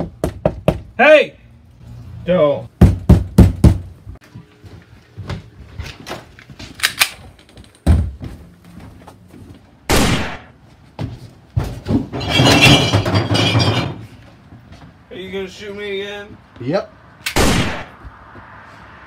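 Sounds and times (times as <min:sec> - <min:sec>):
door thuds and clatter: 0:07.8 - 0:08.3.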